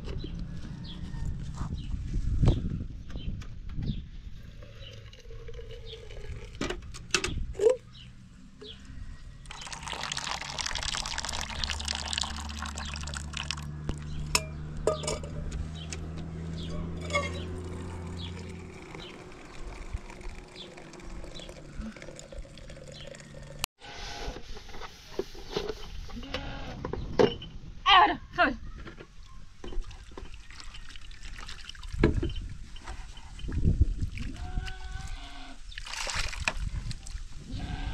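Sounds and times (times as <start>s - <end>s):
water pouring: 4.5s - 6.7s, 9.4s - 13.8s, 17.0s - 23.6s, 29.8s - 32.1s, 35.7s - 37.2s.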